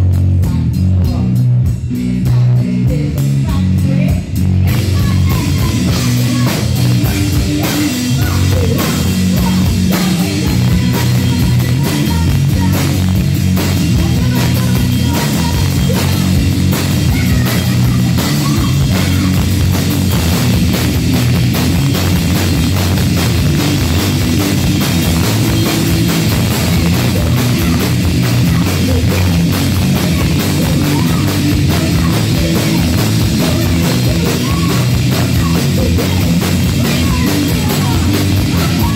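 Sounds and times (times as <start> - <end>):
drum kit with cymbals: 0.0 - 38.9
electric guitar: 0.0 - 38.9.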